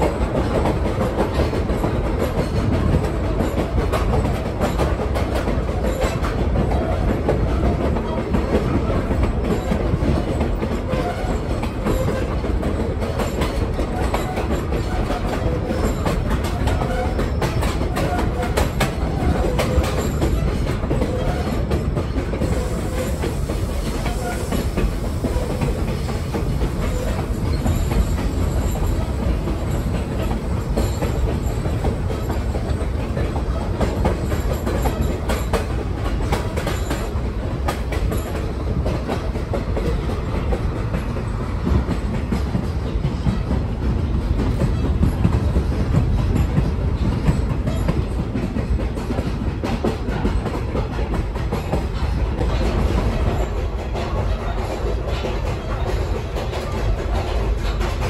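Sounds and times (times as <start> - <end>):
railcar rumbling and rattling: 0.0 - 58.0
wheels clicking over rails: 0.0 - 58.0.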